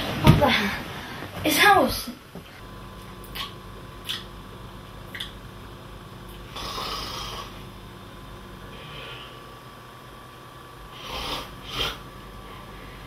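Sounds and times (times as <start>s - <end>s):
electrical hum: 0.0s - 13.0s
man snoring: 6.5s - 7.6s, 10.9s - 12.1s.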